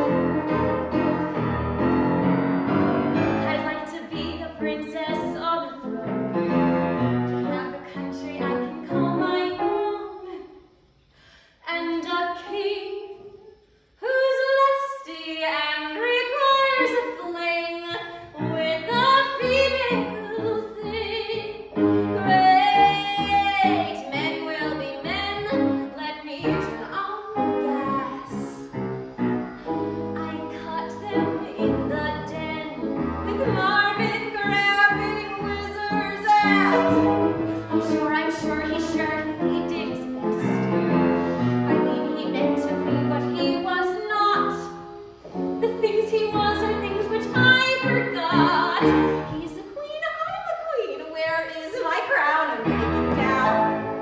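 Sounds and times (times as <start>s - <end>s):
woman singing: 3.2s - 10.6s, 11.6s - 28.8s, 30.2s - 44.8s, 45.6s - 53.9s
instrumental accompaniment: 52.6s - 54.0s.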